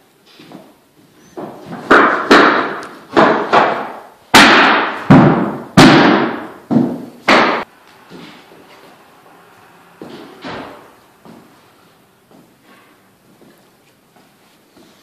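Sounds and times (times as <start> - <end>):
mallet striking flooring nailer: 1.9 - 7.6.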